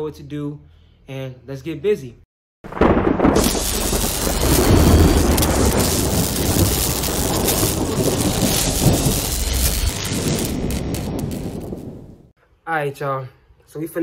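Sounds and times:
deep thunder rumble: 2.7s - 12.3s
heavy rain hissing: 3.3s - 12.3s.

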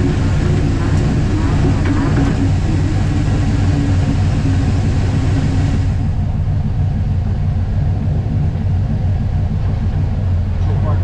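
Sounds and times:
engine deep rumble: 0.0s - 11.0s.

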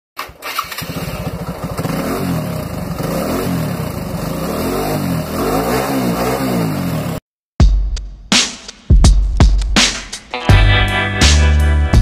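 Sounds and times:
motorcycle engine revving: 0.2s - 7.2s.

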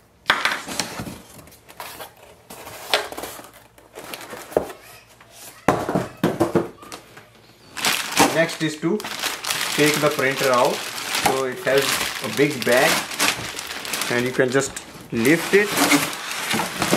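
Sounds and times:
cardboard scraping and rubbing: 11.7s - 16.9s.

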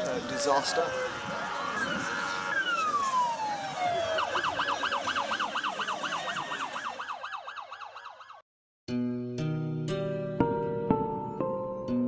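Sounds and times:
emergency siren wailing and yelping: 0.0s - 8.4s.

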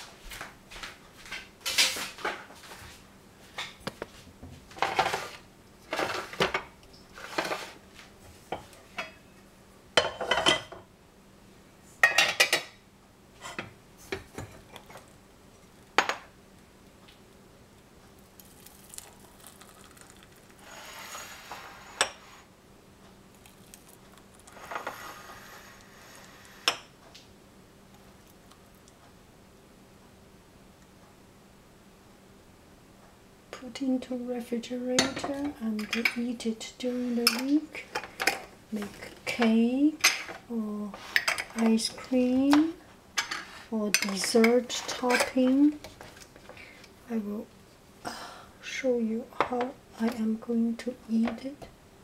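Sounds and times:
thick sauce pouring into jars: 18.2s - 21.0s.

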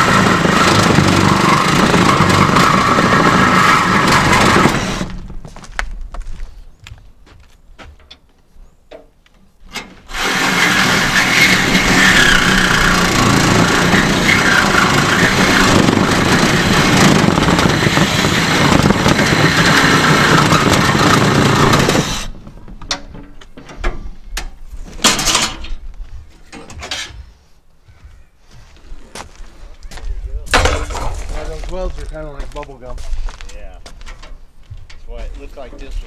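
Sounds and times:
handheld power tool running: 0.0s - 5.2s, 10.1s - 22.4s.

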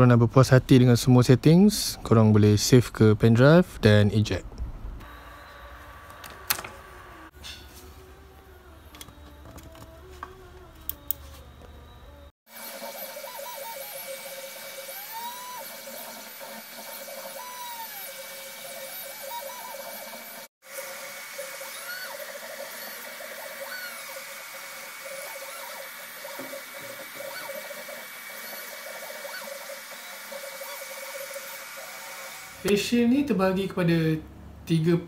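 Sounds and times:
stepper motors whining: 8.1s - 32.7s.

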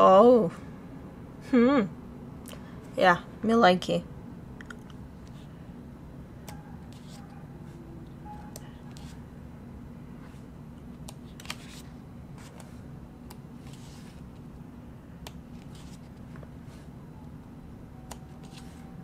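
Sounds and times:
steady low hum: 0.0s - 19.0s
pages being turned: 6.9s - 7.3s, 8.9s - 9.2s, 11.1s - 12.8s, 13.6s - 14.5s, 15.5s - 16.9s, 18.2s - 18.9s.

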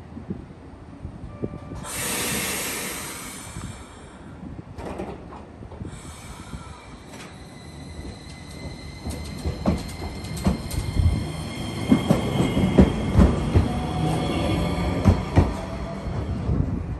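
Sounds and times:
tram high whine: 1.0s - 16.9s
tram wheels knocking over rail joints: 7.1s - 16.3s.

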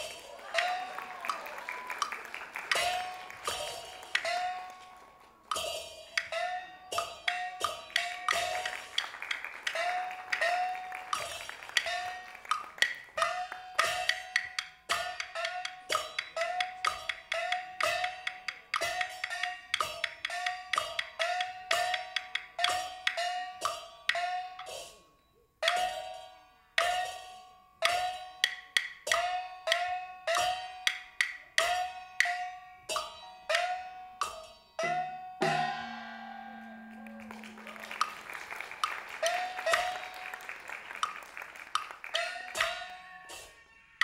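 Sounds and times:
wood block strikes with ringing: 5.5s - 9.0s, 9.8s - 38.2s, 42.2s - 43.6s
shimmering percussion roll: 35.4s - 41.2s.

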